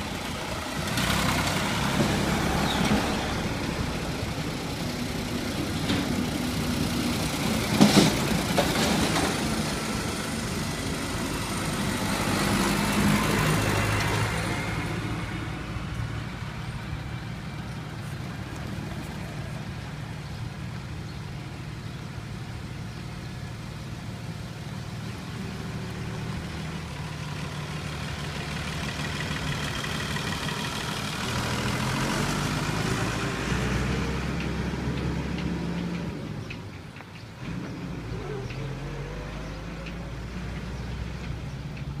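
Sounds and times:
tractor engines passing: 0:00.0 - 0:42.0.

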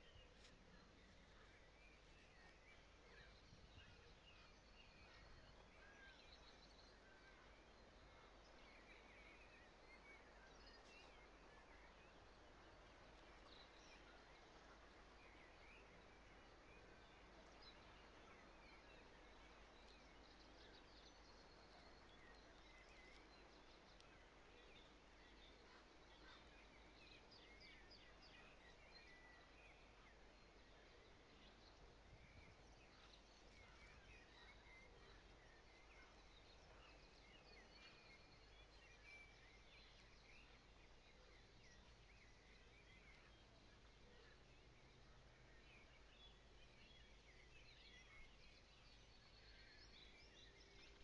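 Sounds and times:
faint songbirds chirping: 0:00.0 - 0:51.0.

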